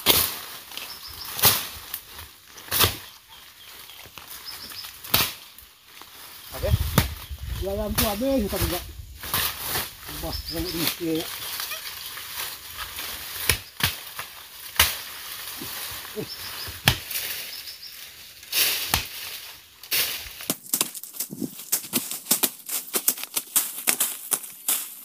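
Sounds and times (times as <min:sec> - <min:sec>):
quick crackles and rustles: 0:00.0 - 0:25.0
chopping into wood: 0:05.1 - 0:05.4, 0:13.4 - 0:15.0, 0:16.7 - 0:17.2, 0:18.8 - 0:19.2.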